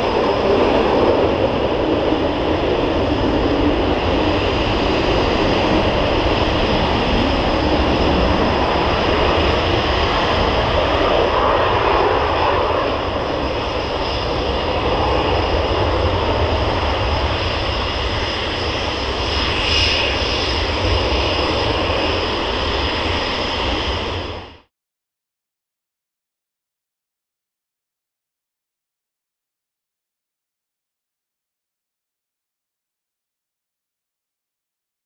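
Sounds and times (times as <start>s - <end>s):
jet engines roaring on take-off: 0.0s - 24.7s.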